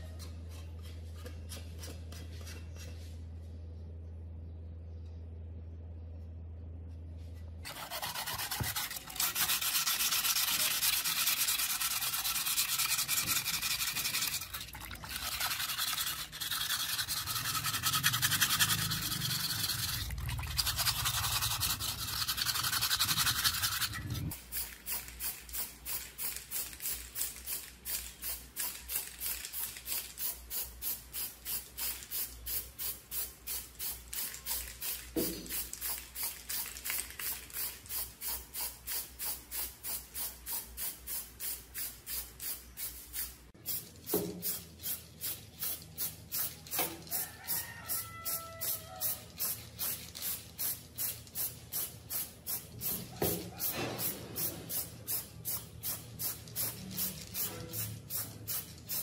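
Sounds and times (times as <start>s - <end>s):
sandpaper scraping metal: 7.7s - 25.4s.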